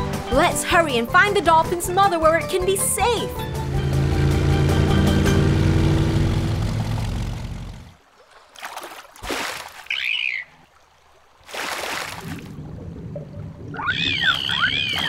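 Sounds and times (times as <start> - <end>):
cartoon boat motor humming: 1.1 - 8.0
water splashing: 3.3 - 15.0
high dolphin chirp: 9.9 - 10.5, 13.8 - 15.0.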